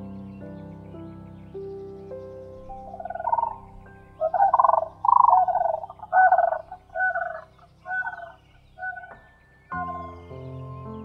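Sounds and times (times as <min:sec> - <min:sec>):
soft background music: 0:00.0 - 0:11.0
crane calling: 0:02.5 - 0:10.2.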